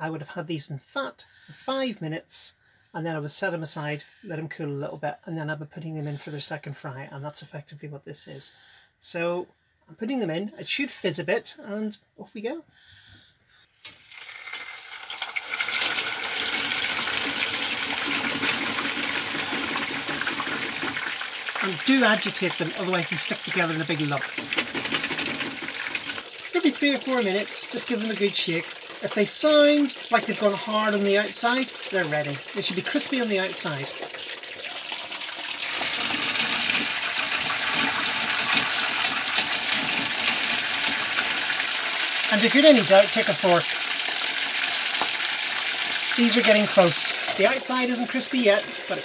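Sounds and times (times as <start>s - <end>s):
chips sizzling in hot oil: 13.8s - 49.0s.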